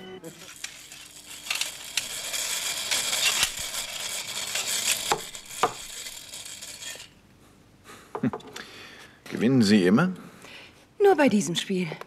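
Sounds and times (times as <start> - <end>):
slot cars buzzing on track: 0.0 - 7.2.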